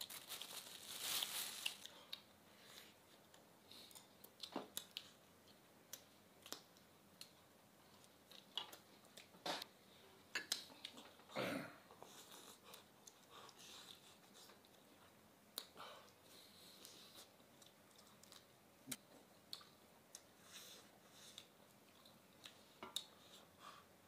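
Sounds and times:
chewing and lip-smacking: 15.6 - 18.5, 19.5 - 20.6.

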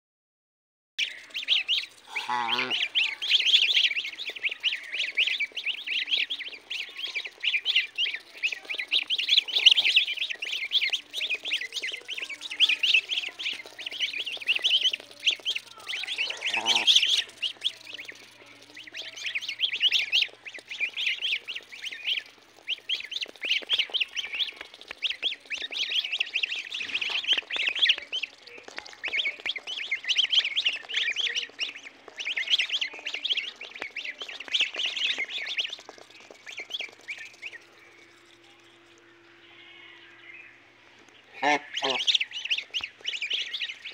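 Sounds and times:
goslings peeping: 1.0 - 43.9
low gosling call: 1.1 - 27.9, 41.3 - 43.9.

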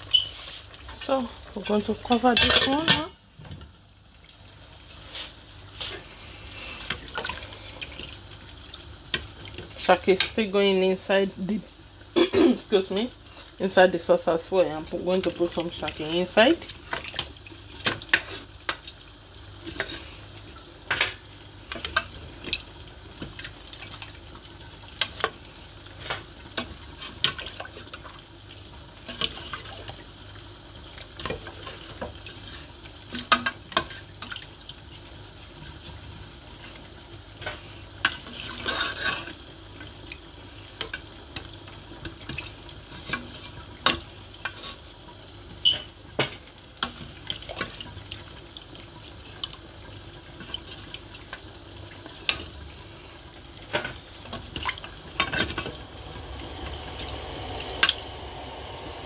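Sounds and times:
liquid sloshing and squelching: 37.5 - 39.4, 50.3 - 58.3.

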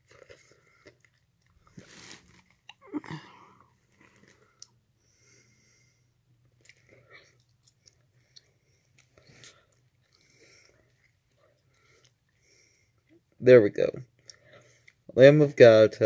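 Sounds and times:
faint breathing: 3.1 - 6.2, 8.0 - 13.1, 14.2 - 15.0.

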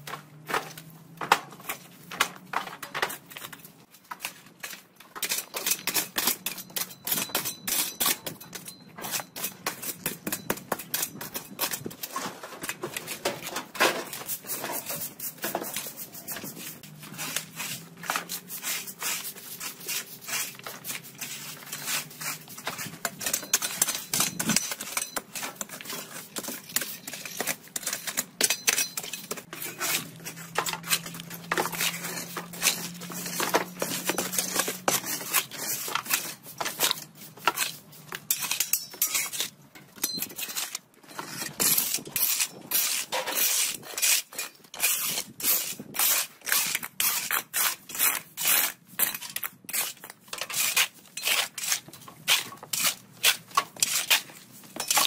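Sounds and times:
shovel scraping on bricks: 0.0 - 55.0.

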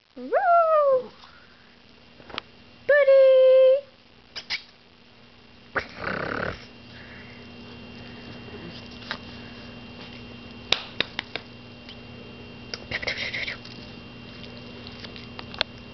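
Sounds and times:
puppy snorting: 5.8 - 6.7, 12.8 - 13.6.

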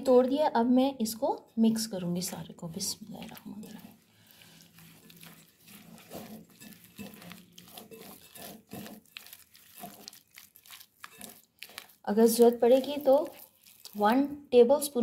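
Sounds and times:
hand squelching raw chicken: 3.0 - 14.4.

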